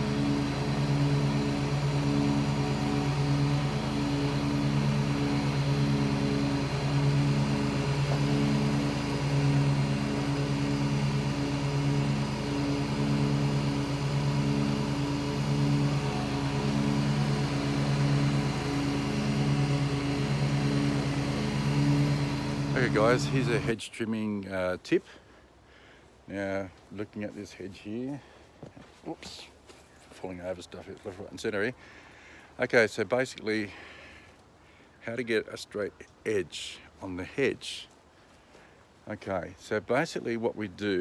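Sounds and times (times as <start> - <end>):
lawn mower engine running: 0.0 - 23.7.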